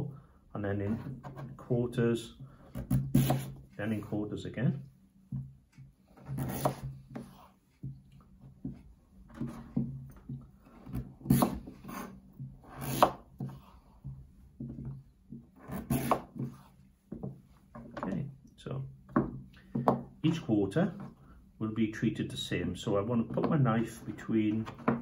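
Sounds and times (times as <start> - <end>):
knife cutting squash on board: 2.7 - 3.6, 6.1 - 7.5, 9.3 - 9.9, 10.7 - 13.7, 15.6 - 16.6.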